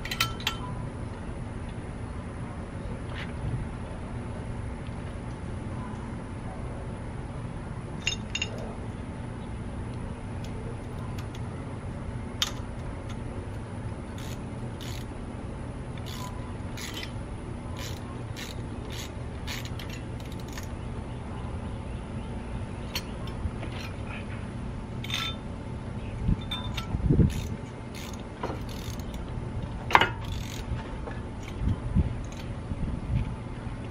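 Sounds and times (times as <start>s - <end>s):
ratchet wrench clicking: 14.1s - 15.1s, 16.0s - 17.2s, 17.8s - 20.7s, 25.0s - 25.4s, 26.4s - 29.2s, 29.9s - 30.7s, 31.4s - 32.5s
metal tool clink: 25.0s - 25.4s, 26.4s - 26.9s.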